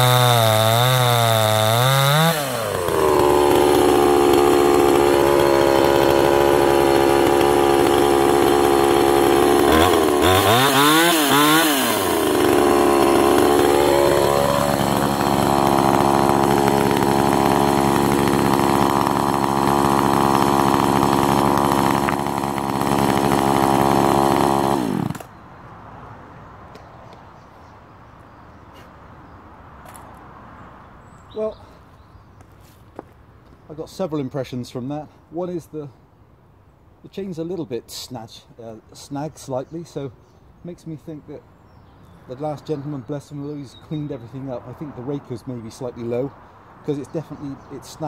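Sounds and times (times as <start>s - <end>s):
chainsaw cutting through a log: 0.0s - 25.3s.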